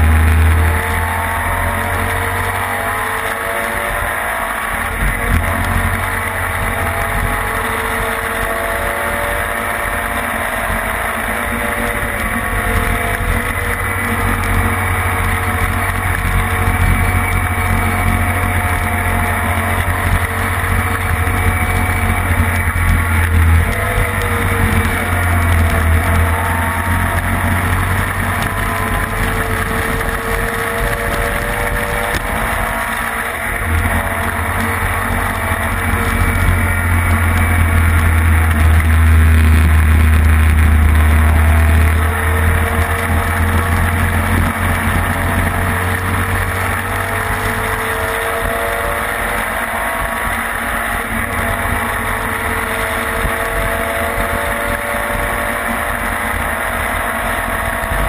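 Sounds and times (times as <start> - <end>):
engine running hard through gears: 0.0 - 58.0.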